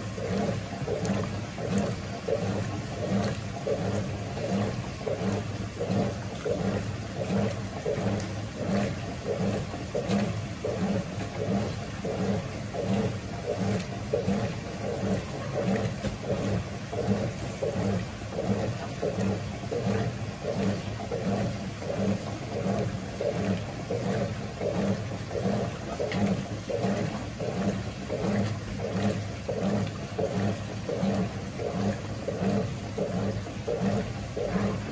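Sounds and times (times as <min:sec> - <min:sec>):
washing machine agitator sloshing: 0:00.0 - 0:34.9
washing machine drive hum: 0:00.0 - 0:34.9.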